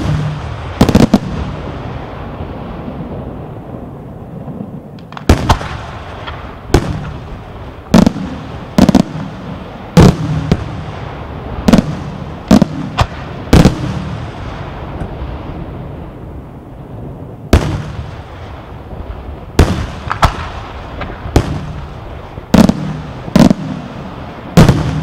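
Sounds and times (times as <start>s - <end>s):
firework shells bursting: 19.6s - 21.9s.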